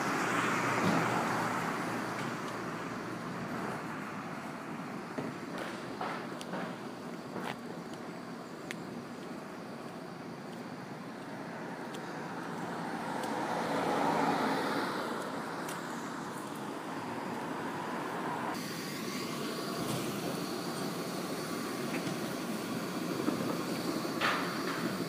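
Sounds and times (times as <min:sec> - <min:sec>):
road vehicle passing by: 0:00.0 - 0:06.8, 0:10.8 - 0:21.2
steady traffic noise: 0:00.0 - 0:25.0.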